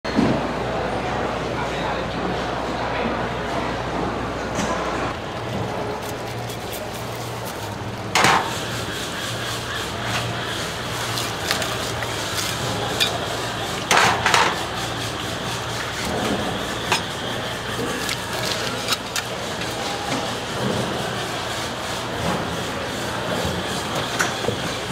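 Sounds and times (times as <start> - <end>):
knife scraping fish skin: 5.3 - 20.0
loud rasping bursts: 5.7 - 19.8.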